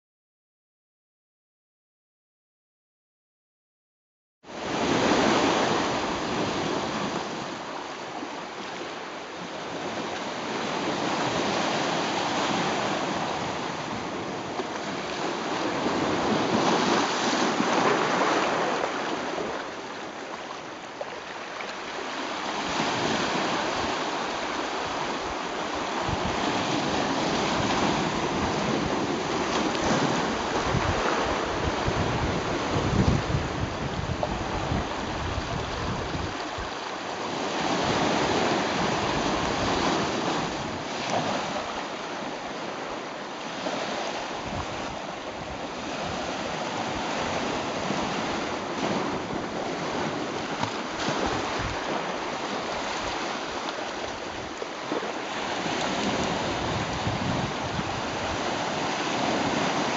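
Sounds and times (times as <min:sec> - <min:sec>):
sea waves washing ashore: 0:04.5 - 0:59.9
wind on microphone: 0:22.5 - 0:59.9.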